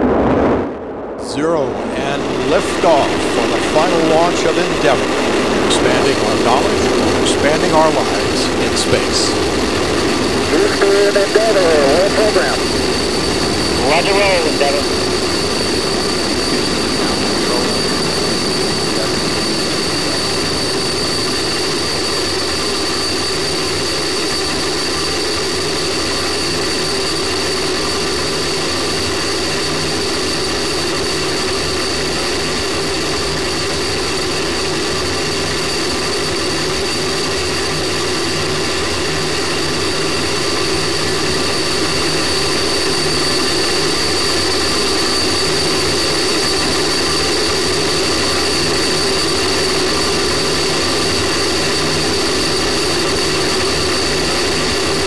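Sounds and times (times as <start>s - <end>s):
rocket booster rushing roar: 0.0s - 7.5s
thin high whine: 0.0s - 55.0s.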